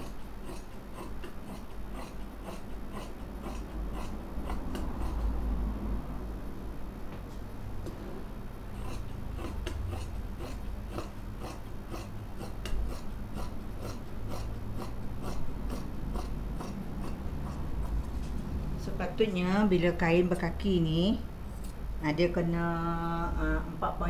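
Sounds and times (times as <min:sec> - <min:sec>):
shears snipping cloth: 0:08.8 - 0:18.4.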